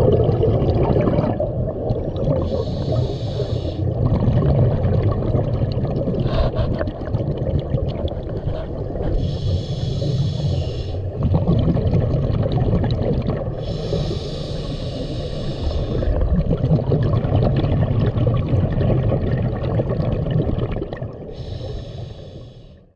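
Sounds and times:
gurgling exhaust bubbles: 0.0s - 9.2s, 11.0s - 14.1s, 15.7s - 21.4s
regulator hissing inhale: 2.5s - 3.9s, 9.1s - 11.1s, 13.6s - 16.1s, 21.3s - 22.9s.

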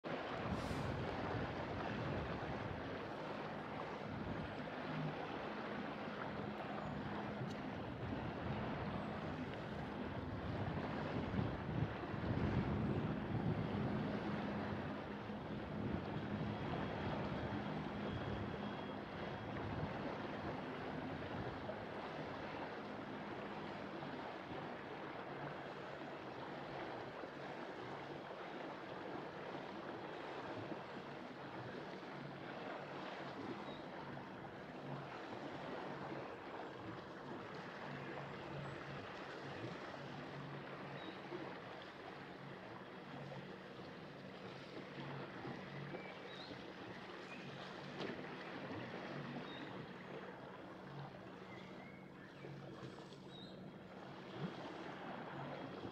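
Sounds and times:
boat engine humming: 0.0s - 55.9s
water rushing along hull: 0.0s - 55.9s
wind noise: 9.7s - 15.0s.

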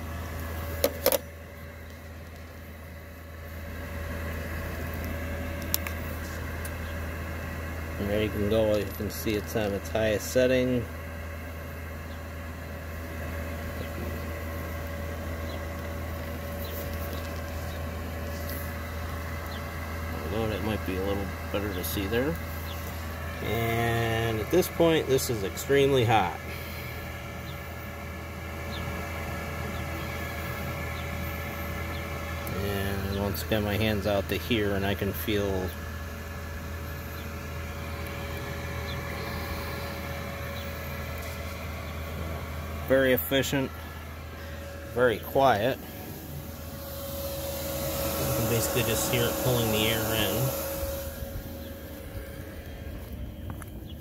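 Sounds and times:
air heater humming: 0.0s - 54.0s
faint steady whine: 0.0s - 54.0s.

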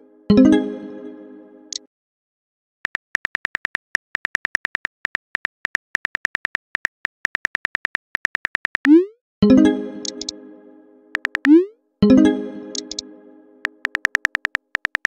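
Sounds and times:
phone keyboard typing clicks: 2.9s - 9.0s, 10.0s - 10.3s, 11.1s - 11.6s, 12.8s - 13.0s, 13.6s - 15.0s
tone: 8.9s - 14.0s.

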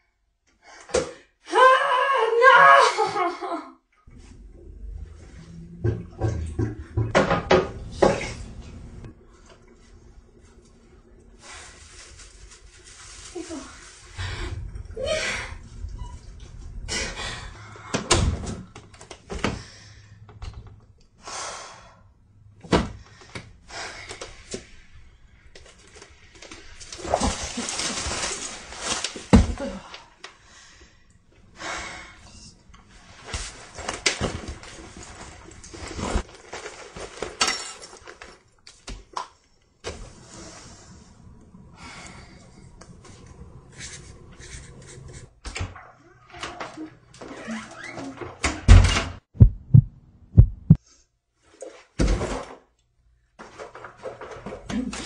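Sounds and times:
plastic bag rustling: 11.4s - 14.2s, 25.6s - 29.3s, 33.5s - 38.5s
knocks and thuds: 48.7s - 50.8s.

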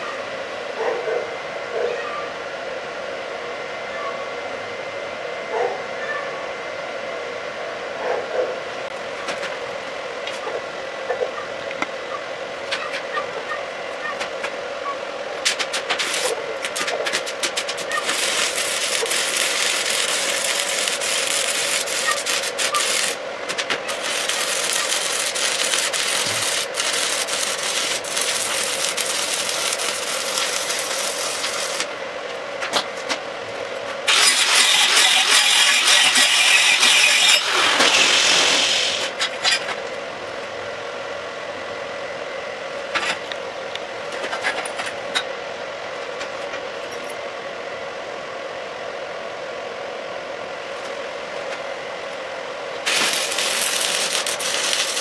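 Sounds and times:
steady hum: 0.0s - 55.0s
welding arc crackling: 15.4s - 31.9s, 34.1s - 39.2s, 52.8s - 55.0s.

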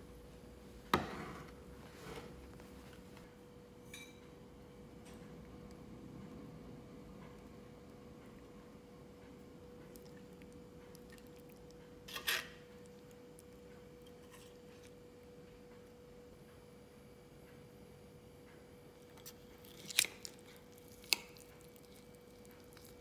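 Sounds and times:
faint hum: 0.0s - 23.0s
cutlery clinking on a plate: 3.9s - 4.2s.

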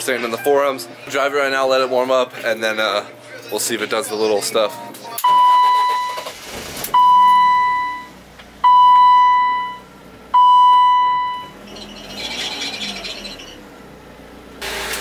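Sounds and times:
car dashboard warning chime: 7.0s - 11.5s.

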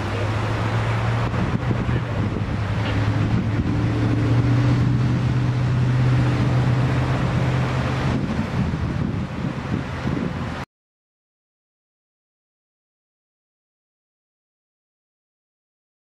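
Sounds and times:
vehicle engine humming: 0.0s - 10.6s
wind on microphone: 0.0s - 10.7s.

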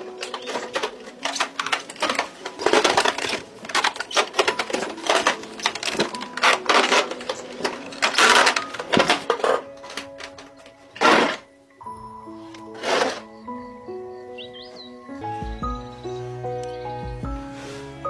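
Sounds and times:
stone wheel crushing grain: 0.0s - 11.5s, 12.6s - 13.3s.

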